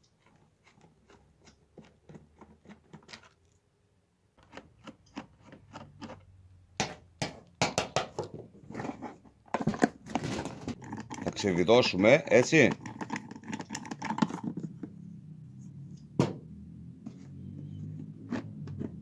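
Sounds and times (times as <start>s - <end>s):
plastic body knocks and scrapes: 8.1s - 15.1s, 17.1s - 19.0s.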